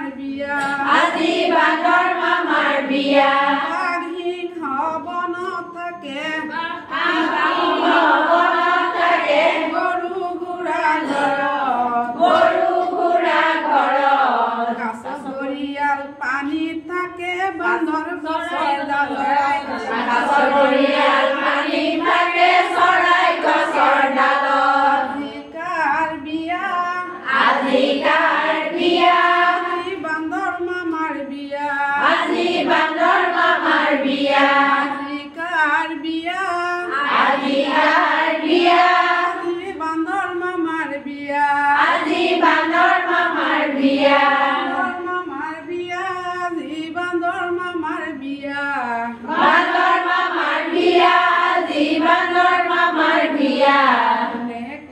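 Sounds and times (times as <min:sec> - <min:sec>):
women singing: 0:00.0 - 0:04.6, 0:06.2 - 0:15.9, 0:18.0 - 0:25.6, 0:26.2 - 0:30.2, 0:32.0 - 0:35.4, 0:36.9 - 0:39.6, 0:41.8 - 0:45.3, 0:49.1 - 0:54.9.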